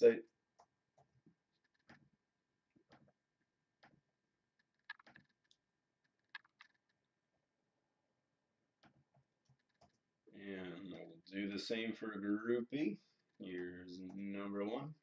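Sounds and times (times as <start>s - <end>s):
mouse and keyboard clicks: 4.6s - 5.6s, 6.2s - 6.9s.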